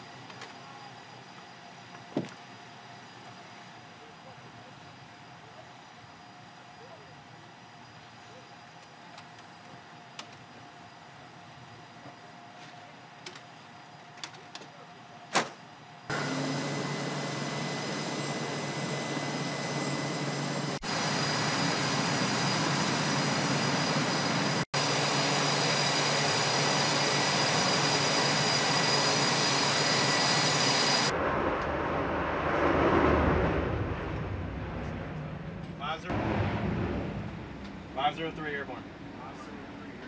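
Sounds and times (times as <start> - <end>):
jet engines whining: 15.7 - 40.0
low rumbling: 31.1 - 39.8.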